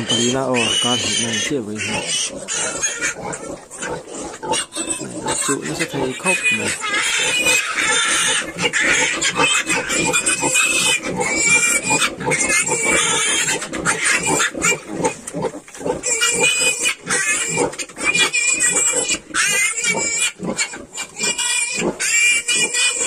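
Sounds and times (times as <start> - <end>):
piglets squealing and grunting: 0.0 - 23.0.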